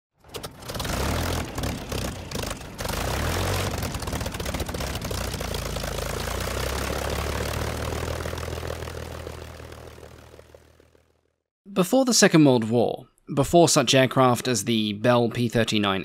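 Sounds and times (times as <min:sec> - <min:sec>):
propeller aircraft engine running: 0:00.2 - 0:11.5.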